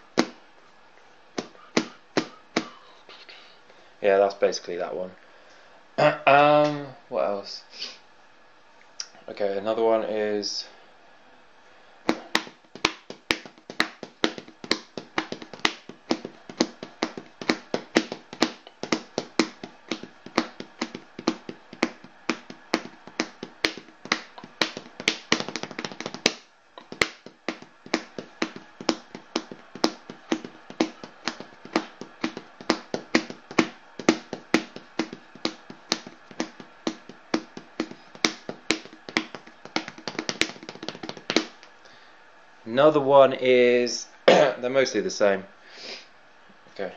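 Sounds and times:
hand drum beat: 12.1 - 41.6.

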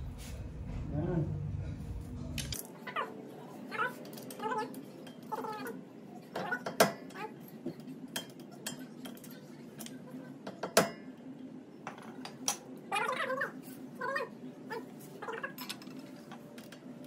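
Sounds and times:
metal tools tapping and clinking: 15.4 - 16.9.

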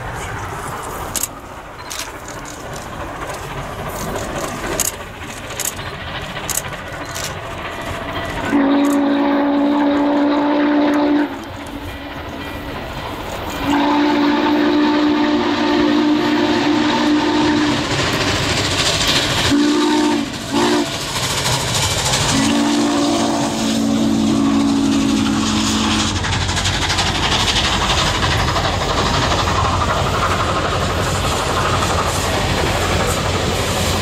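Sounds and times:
steam locomotive running past: 0.0 - 34.0
steam whistle blasts: 8.4 - 11.5, 13.6 - 17.9, 19.5 - 21.0, 22.3 - 26.2.

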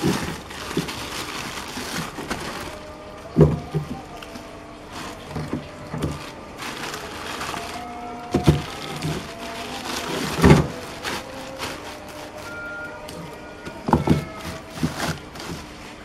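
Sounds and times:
frozen fish knocking together: 0.0 - 15.9
plastic bags crinkling: 0.0 - 16.0.

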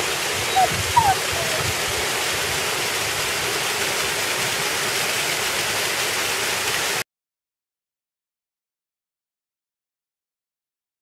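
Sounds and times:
waterfall splashing: 0.0 - 7.0.

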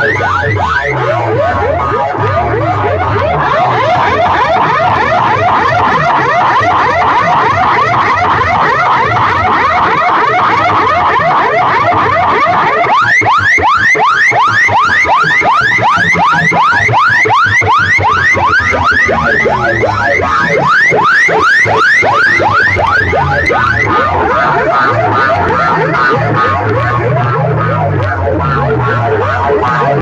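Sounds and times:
electronic siren chirps: 0.0 - 30.0
low beat: 15.0 - 30.0.

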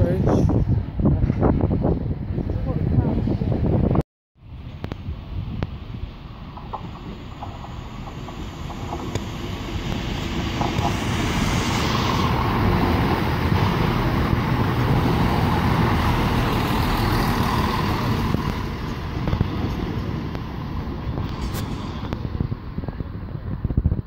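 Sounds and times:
diesel train passing: 4.4 - 23.6.

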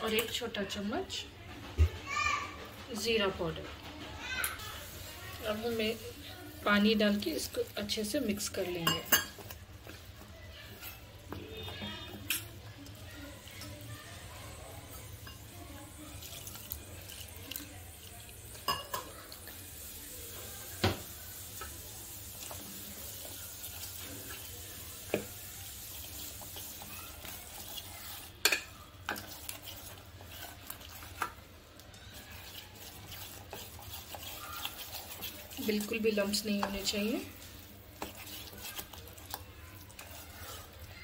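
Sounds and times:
spoon scraping wet batter: 2.6 - 20.7, 21.3 - 41.0
spoon clinking on metal pot: 8.8 - 9.6, 18.6 - 19.1, 28.4 - 29.3.

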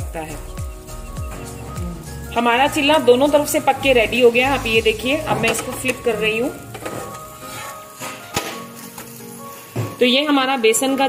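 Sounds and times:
soft background music: 0.0 - 11.0
spatula striking griddle: 6.7 - 10.0.

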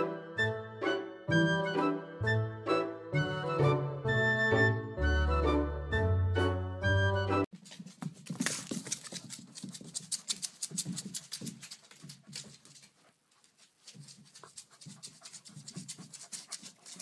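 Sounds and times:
claws scratching on hardwood floor: 7.5 - 17.0
dog breathing hard: 8.3 - 17.0.

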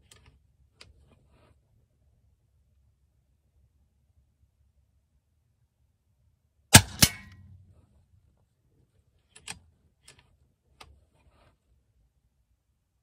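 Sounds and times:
air rifle shot crack: 6.7 - 7.4.

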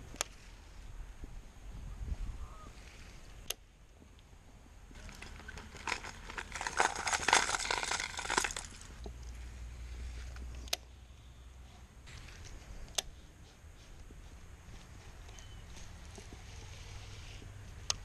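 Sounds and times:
crinkling handling noise: 4.9 - 10.7.

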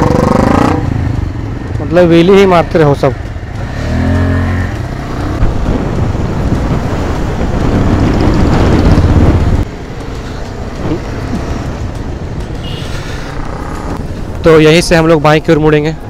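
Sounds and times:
motorcycle engine running: 0.0 - 14.3
wind buffeting microphone: 4.7 - 12.8.

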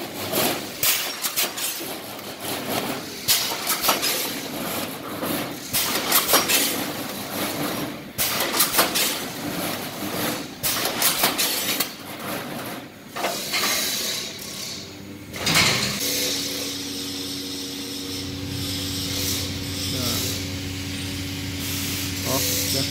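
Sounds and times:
air cylinders knocking and hissing: 0.0 - 22.9.

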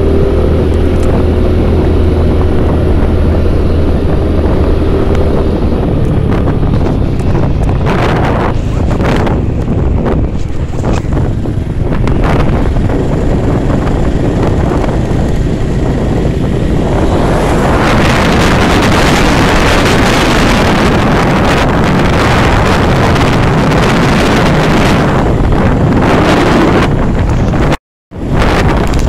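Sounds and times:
scooter engine running: 0.0 - 20.7
wind rushing over microphone: 0.0 - 29.0.

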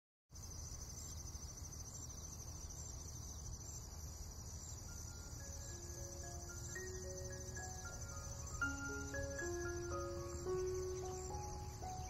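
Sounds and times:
crickets chirping: 0.3 - 12.0
soft held music notes: 4.8 - 12.0.

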